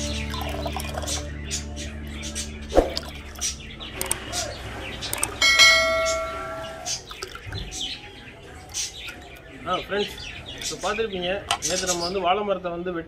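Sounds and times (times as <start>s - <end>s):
high bird chirps: 0.0s - 12.3s
struck bell chime: 5.4s - 6.8s.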